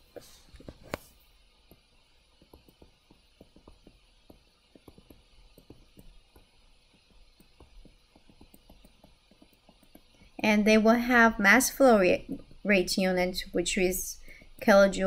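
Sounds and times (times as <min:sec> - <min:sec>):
stylus tapping on tablet screen: 0:01.6 - 0:10.4.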